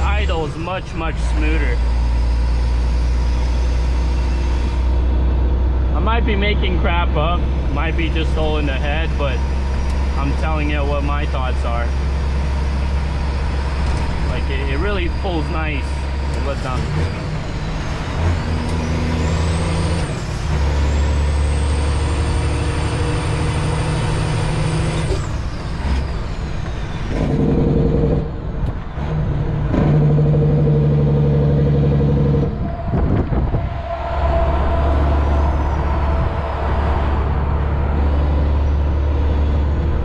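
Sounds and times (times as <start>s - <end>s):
diesel truck engine under load: 0.0s - 40.0s
high turbo whistle: 32.5s - 38.0s.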